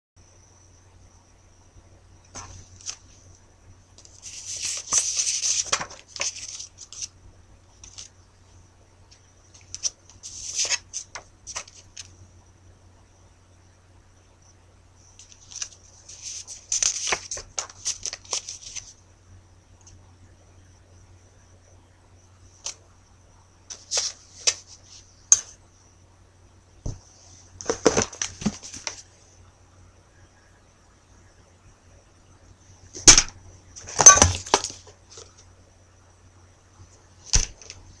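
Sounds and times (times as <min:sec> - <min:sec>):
faint high hiss: 0:00.2 - 0:38.0
faint high-pitched whine: 0:00.2 - 0:38.0
paper cards rustling: 0:04.0 - 0:07.1, 0:07.8 - 0:08.1, 0:09.5 - 0:12.1, 0:15.2 - 0:18.9, 0:23.7 - 0:25.5, 0:27.6 - 0:29.0.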